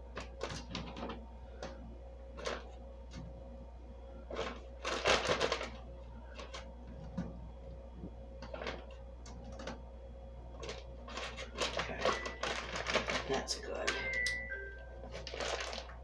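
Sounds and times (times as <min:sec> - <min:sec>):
carrot pieces rustling in plastic bags: 0:04.3 - 0:06.7, 0:10.6 - 0:14.2, 0:15.1 - 0:16.0.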